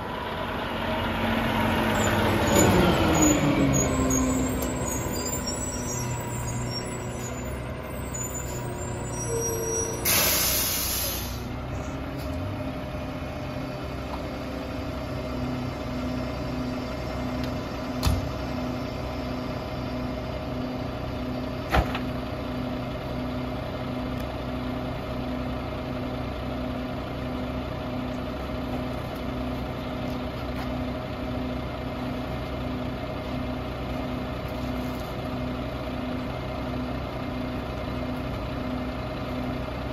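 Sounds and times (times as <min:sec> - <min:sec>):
garbage truck idling: 0:00.0 - 0:39.9
air brake hiss: 0:08.3 - 0:11.5.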